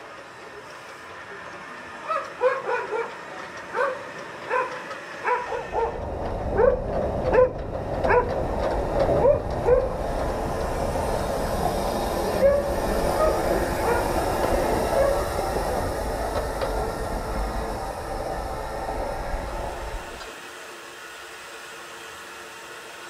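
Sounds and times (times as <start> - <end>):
steam locomotive rumbling past: 0.0 - 23.0
dog barking: 2.0 - 3.1, 3.7 - 6.0, 6.6 - 8.4, 9.2 - 9.9, 12.4 - 14.2, 15.0 - 15.3.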